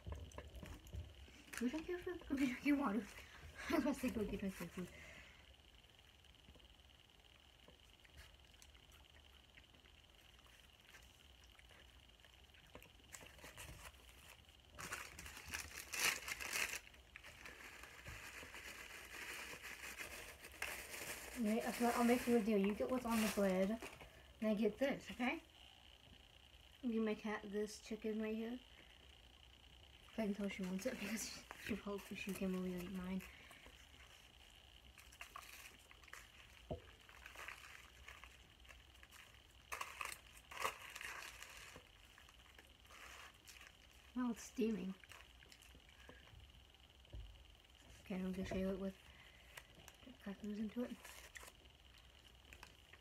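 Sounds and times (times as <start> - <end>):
food packaging crinkling: 12.6 - 24.2, 34.9 - 46.3, 50.9 - 53.0.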